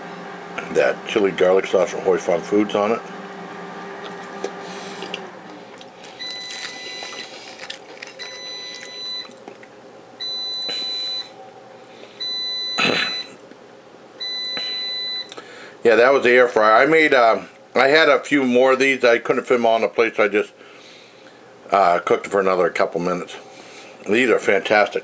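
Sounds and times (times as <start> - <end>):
air fryer beeping: 0.0 - 5.5, 6.1 - 9.4, 10.1 - 11.6, 12.2 - 13.5, 14.2 - 16.2.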